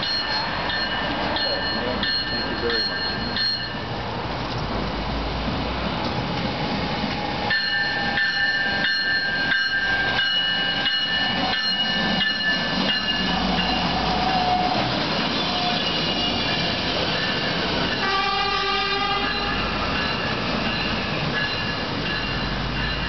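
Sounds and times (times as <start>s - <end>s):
electronic warning bell ringing: 0.0s - 3.8s, 7.5s - 14.0s
diesel train rumble: 0.0s - 23.0s.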